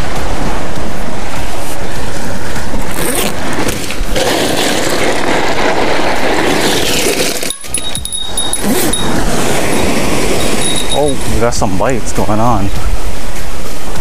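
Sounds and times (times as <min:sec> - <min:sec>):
wind noise on microphone: 0:00.0 - 0:14.0
backpack unzipping and rummaging: 0:02.9 - 0:05.2, 0:06.3 - 0:10.6.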